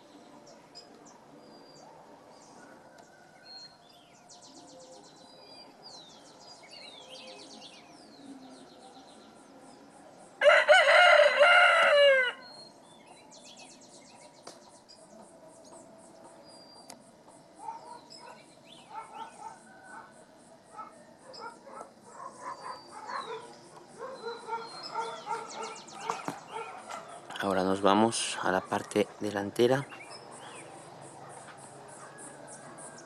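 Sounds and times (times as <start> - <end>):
small birds chirping: 0.0 - 10.5, 12.4 - 33.0
rooster crowing: 10.4 - 12.5.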